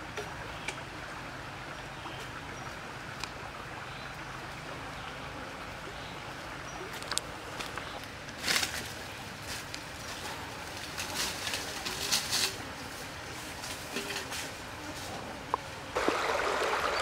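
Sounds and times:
background hiss: 0.0 - 17.0
footsteps rustling through dry leaves: 8.4 - 15.2.

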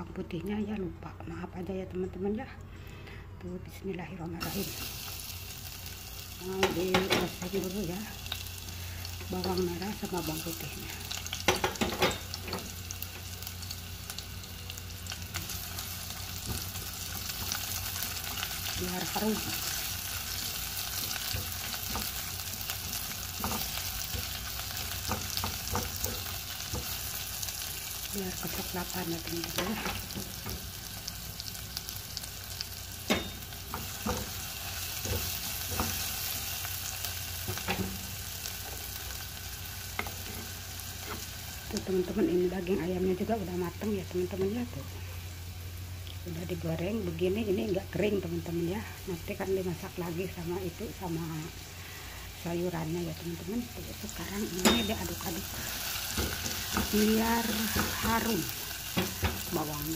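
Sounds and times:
low steady hum: 0.0 - 59.9
shallots and garlic sizzling in oil: 4.0 - 59.9
spatula stirring in pot: 16.4 - 27.2.

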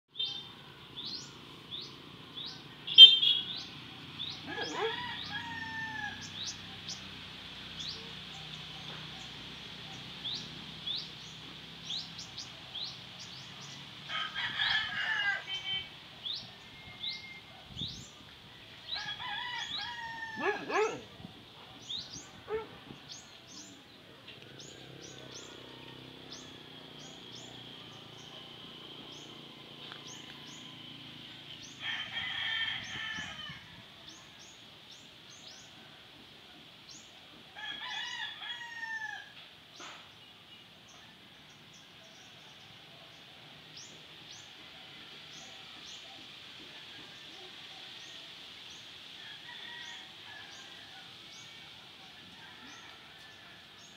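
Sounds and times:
rooster crowing: 4.4 - 6.4, 14.1 - 15.9, 18.8 - 21.0, 31.7 - 34.0, 37.6 - 39.4, 49.2 - 51.5, 52.3 - 53.9.

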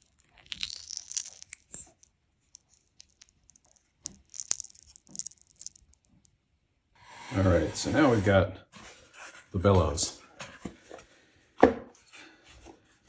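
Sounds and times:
sticky crackling and tearing: 0.0 - 6.3.

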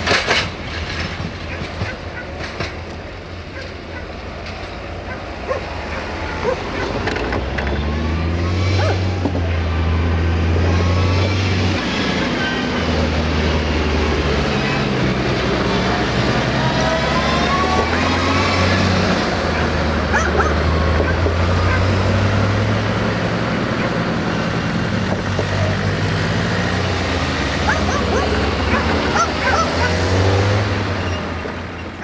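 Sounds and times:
heavy vehicle engine rumble: 0.0 - 32.0
dog whining and yelping: 8.8 - 9.0, 27.6 - 30.0.

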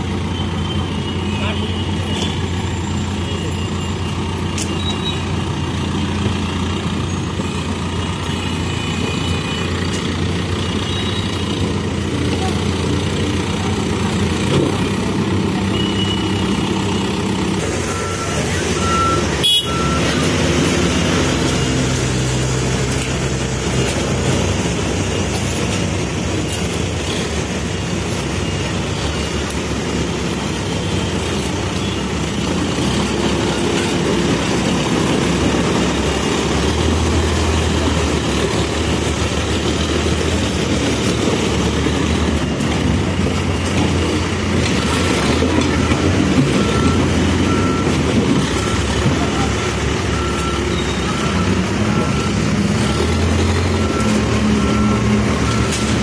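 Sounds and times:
diesel engine running: 0.0 - 56.0
reversing alarm beeping: 14.4 - 56.0.

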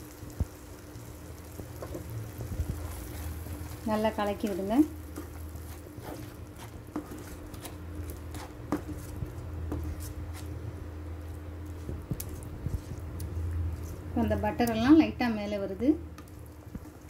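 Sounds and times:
steady low hum: 0.0 - 17.0
spatula stirring thick paste: 2.3 - 14.9.

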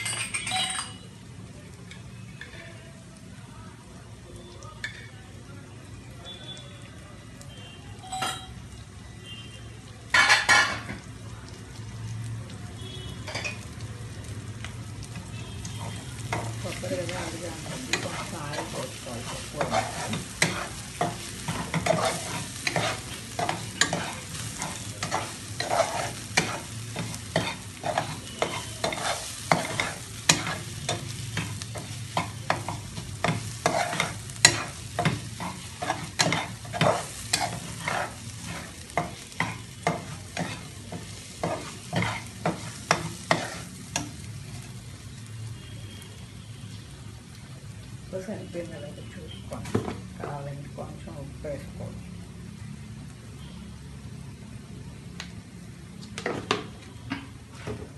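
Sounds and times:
food sizzling in oil: 0.0 - 57.9
spatula scraping metal pan: 17.2 - 44.1.

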